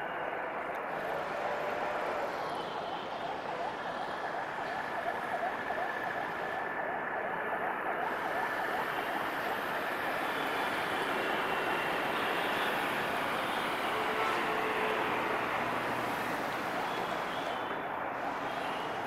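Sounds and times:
road traffic din: 0.0 - 19.0
siren warbling: 0.8 - 13.0.

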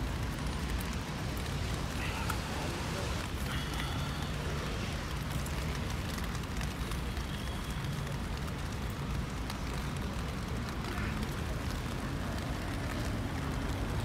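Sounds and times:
rain pattering on umbrella: 0.0 - 14.0.

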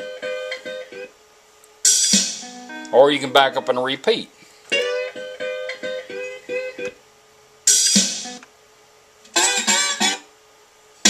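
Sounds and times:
plucked guitar notes: 2.4 - 3.9
guitar music from car radio: 9.4 - 10.2.

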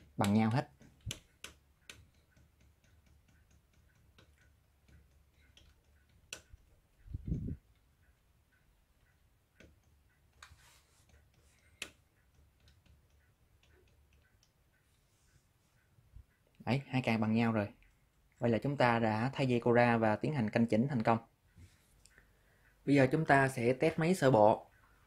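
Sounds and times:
sharp clicks: 0.0 - 14.9
faint gear ticking: 0.0 - 18.4.

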